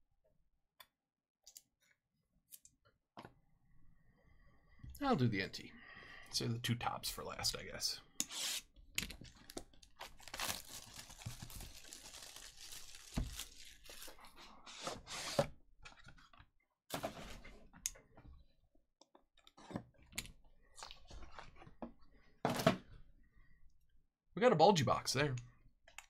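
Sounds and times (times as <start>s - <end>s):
shrink wrap crinkling and tearing: 9.3s - 14.4s.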